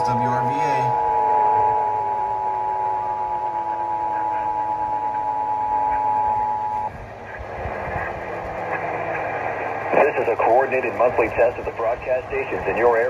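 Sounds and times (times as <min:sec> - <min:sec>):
two-tone alert alarm: 0:00.0 - 0:06.9
radio hiss: 0:03.7 - 0:13.0.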